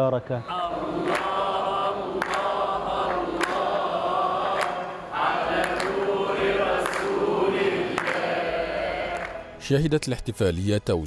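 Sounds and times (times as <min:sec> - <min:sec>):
group of voices chanting: 0:00.4 - 0:09.6
sharp hand claps: 0:01.0 - 0:01.5, 0:02.1 - 0:04.9, 0:05.5 - 0:08.4.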